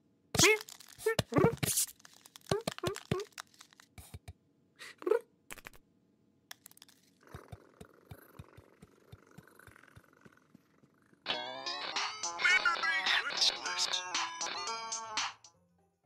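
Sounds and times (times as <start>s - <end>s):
cartoon chewing crunches: 0.4s - 4.3s, 6.5s - 10.7s.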